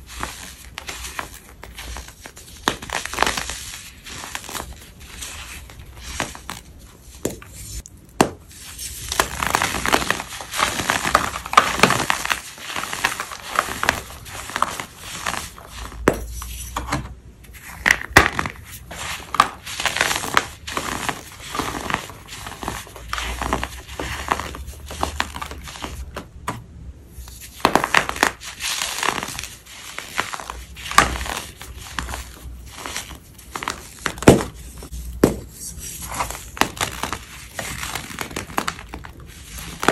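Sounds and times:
powder blocks crunching: 8.2s - 16.3s, 27.4s - 39.9s.

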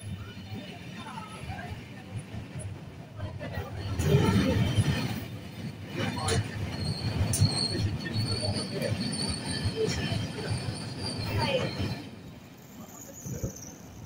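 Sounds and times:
low train rumble: 0.0s - 14.0s
train wheels squealing: 4.0s - 14.0s.

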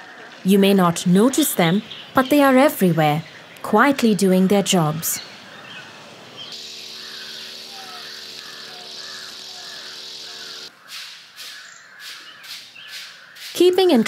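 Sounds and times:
birds chirping: 0.0s - 14.0s
string trimmer running: 6.5s - 10.7s.

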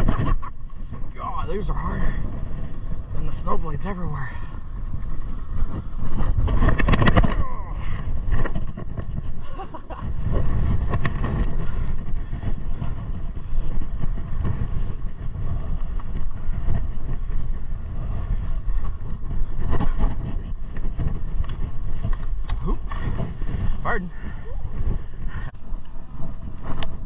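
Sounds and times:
wind buffeting microphone: 0.0s - 27.0s
snowblades sliding over snow: 2.9s - 22.4s, 24.8s - 27.0s.

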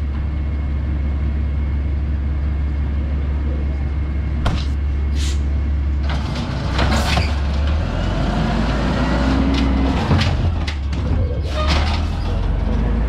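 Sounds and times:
garbage truck engine rumbling: 0.0s - 13.0s
short air hisses: 5.1s - 5.5s.

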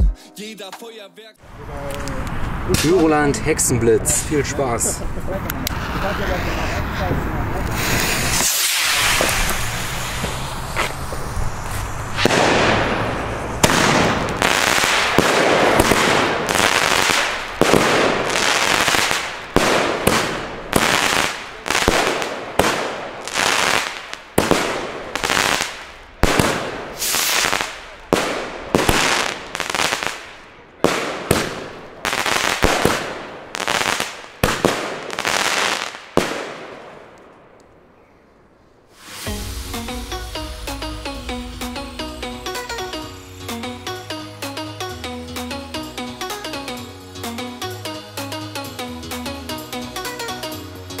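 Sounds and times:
firework stars crackling: 5.6s - 37.8s, 38.9s - 44.1s
firework shots launching: 7.7s - 37.6s, 38.9s - 43.6s.

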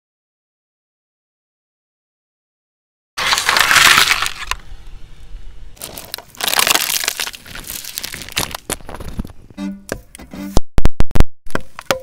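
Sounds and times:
tyre crunching plastic boxes: 3.2s - 4.6s, 5.8s - 9.4s.

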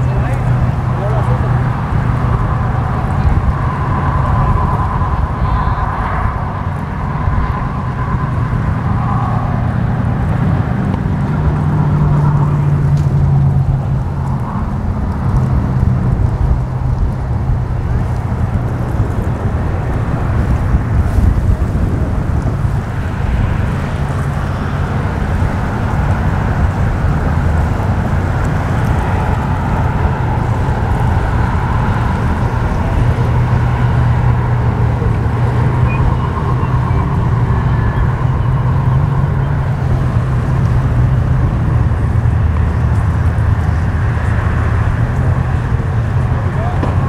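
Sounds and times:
boat outboard motors droning: 0.0s - 47.0s
wind buffeting microphone: 0.0s - 47.0s.

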